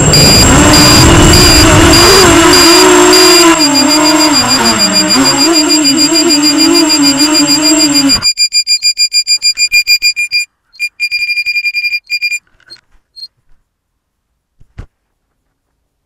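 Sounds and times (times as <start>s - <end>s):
high-pitched buzzer beeps: 0.0s - 12.4s.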